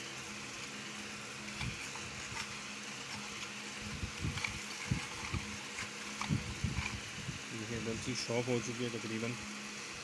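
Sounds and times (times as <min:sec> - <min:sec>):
pencil sharpener grinding: 0:00.0 - 0:07.3.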